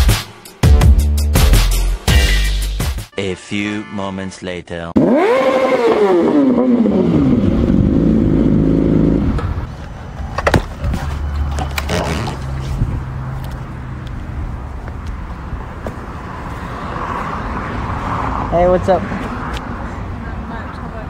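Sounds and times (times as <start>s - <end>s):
motorcycle engine winding down: 5.0s - 9.6s.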